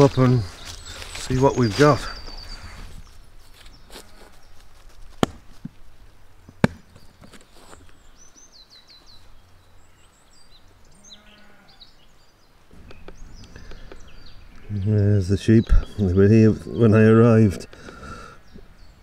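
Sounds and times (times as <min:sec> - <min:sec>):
small birds chirping: 0:00.0 - 0:19.0
sheep bleating faintly: 0:11.0 - 0:11.8.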